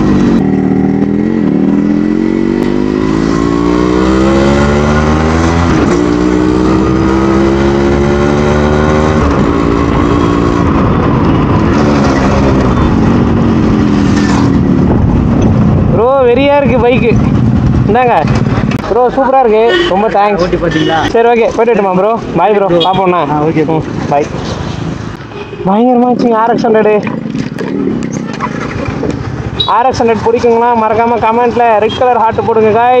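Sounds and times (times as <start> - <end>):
two-stroke motorcycle engine accelerating: 0.0 - 15.8.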